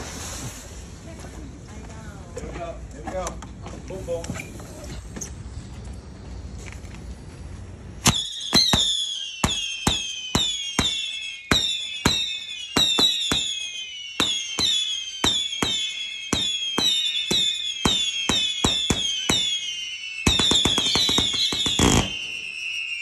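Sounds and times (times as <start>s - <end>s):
falling firework whistle: 7.9s - 23.0s.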